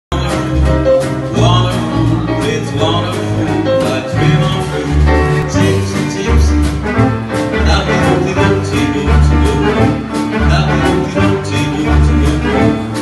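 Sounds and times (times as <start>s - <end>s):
bass line: 0.1s - 13.0s
drums: 0.1s - 13.0s
piano: 0.1s - 13.0s
swing band playing: 0.1s - 13.0s.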